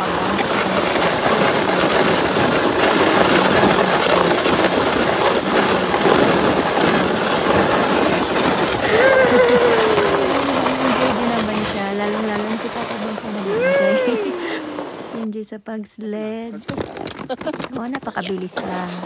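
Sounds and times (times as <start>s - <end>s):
sled rushing over snow: 0.0s - 15.3s
person's voice: 8.8s - 19.0s.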